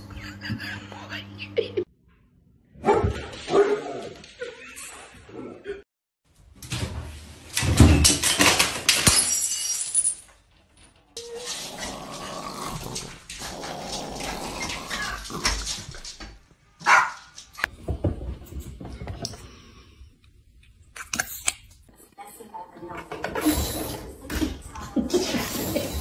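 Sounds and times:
objects clattering onto floor: 0:07.6 - 0:16.4
small dog growling and barking: 0:11.2 - 0:16.1.

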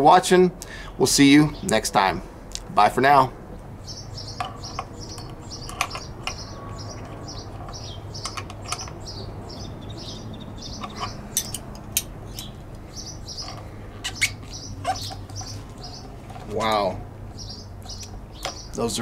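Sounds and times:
small bird chirping: 0:03.8 - 0:19.0
wrenches clicking on metal: 0:10.8 - 0:12.6.

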